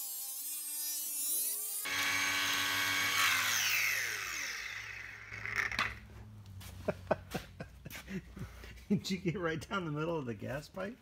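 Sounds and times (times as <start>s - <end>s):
angle grinder spinning down: 0.0s - 6.0s.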